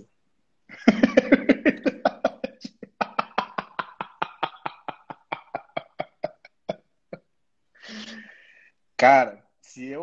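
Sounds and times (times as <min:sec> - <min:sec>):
man laughing hard: 0:00.7 - 0:07.3.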